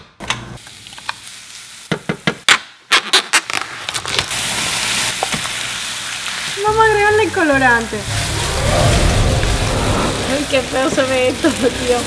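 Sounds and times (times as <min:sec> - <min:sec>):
meat sizzling in frying pan: 0:00.6 - 0:02.3, 0:04.3 - 0:09.5, 0:10.2 - 0:12.0.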